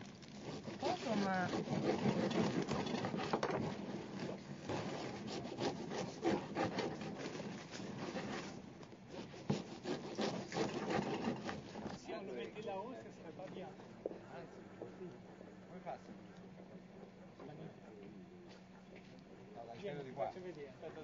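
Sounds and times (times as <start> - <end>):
knife sawing crusty bread: 0.2 - 12.1.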